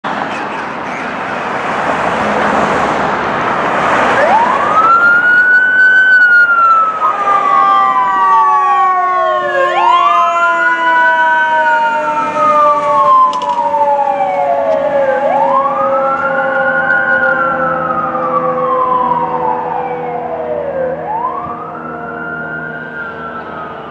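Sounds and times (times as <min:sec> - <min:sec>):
loud rushing noise: 0:00.1 - 0:04.8
mechanical siren wailing: 0:04.1 - 0:23.9
steady siren tone sinking in pitch: 0:04.1 - 0:23.9.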